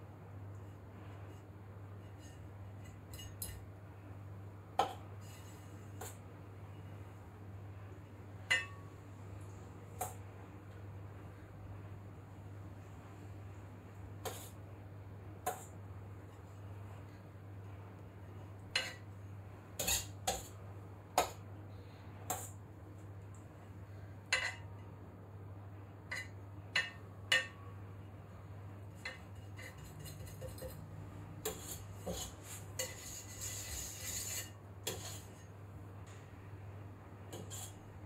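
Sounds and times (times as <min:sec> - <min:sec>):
low steady hum: 0:00.0 - 0:38.0
scraper scraping: 0:31.4 - 0:35.4.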